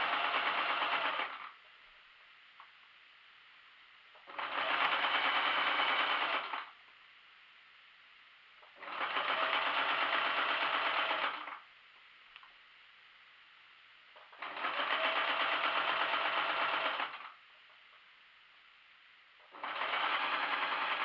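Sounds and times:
sewing machine stitching: 0.0s - 1.6s, 4.2s - 6.8s, 8.6s - 11.6s, 14.2s - 17.4s, 19.4s - 21.0s.

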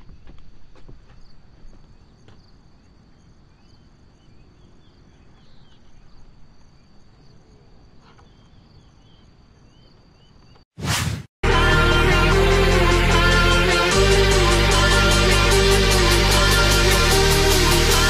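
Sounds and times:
crickets droning: 0.0s - 10.6s.

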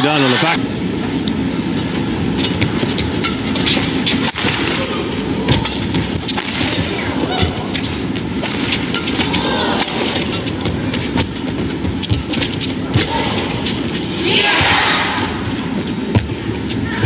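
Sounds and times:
arena crowd noise: 0.0s - 1.0s, 2.0s - 17.0s
rackets hitting shuttlecock: 1.3s - 14.6s.

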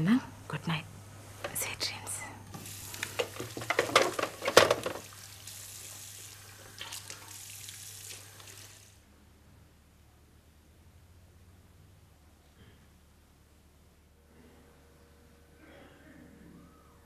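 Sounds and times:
steady hiss: 1.4s - 9.1s
telephone handset clattering onto cradle: 3.2s - 5.0s.

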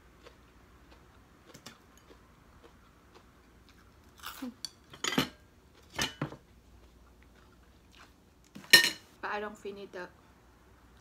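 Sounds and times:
plates and bowls clinking: 4.6s - 6.4s, 8.6s - 9.1s.

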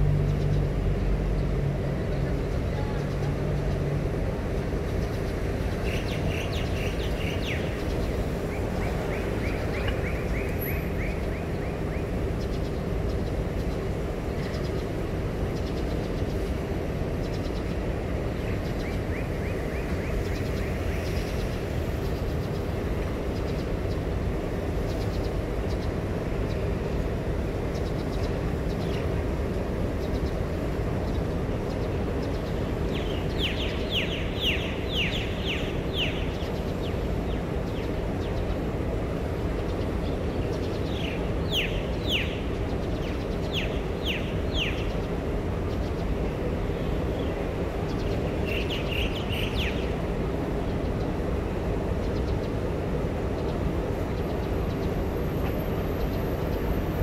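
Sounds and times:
low outdoor rumble: 0.0s - 57.0s
bird chirping: 4.8s - 16.5s, 30.0s - 38.7s, 39.6s - 50.1s.

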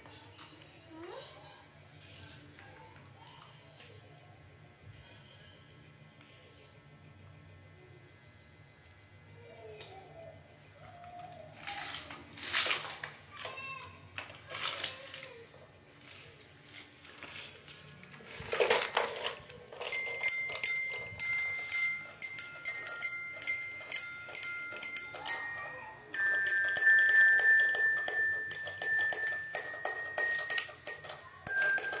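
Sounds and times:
toy xylophone notes: 19.8s - 32.0s.

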